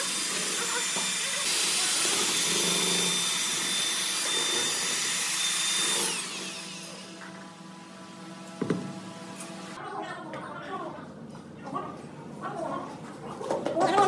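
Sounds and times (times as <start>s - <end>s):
electric drill mixer whining: 0.0s - 9.8s.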